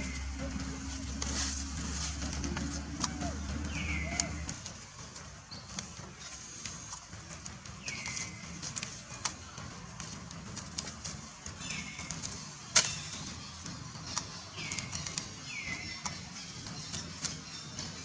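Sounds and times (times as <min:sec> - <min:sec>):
high downward-sliding calls: 0:00.0 - 0:04.6
clicks and rustles in dry leaves: 0:00.0 - 0:18.0.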